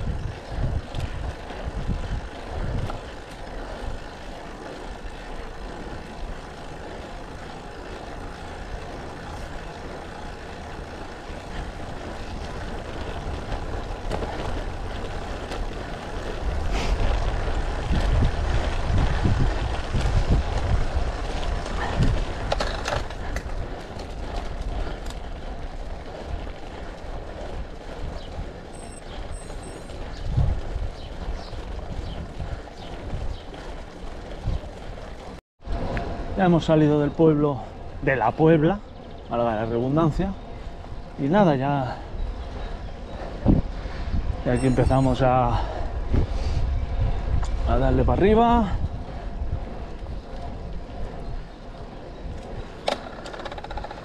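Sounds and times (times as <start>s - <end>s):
tyre hum on asphalt: 0.0s - 54.0s
wind rumble on microphone: 0.0s - 54.0s.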